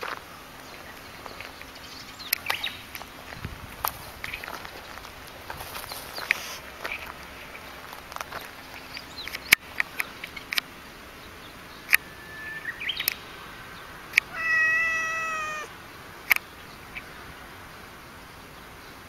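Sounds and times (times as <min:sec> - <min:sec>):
sharp clicks: 0:08.8 - 0:10.7
cat meowing: 0:14.2 - 0:15.7.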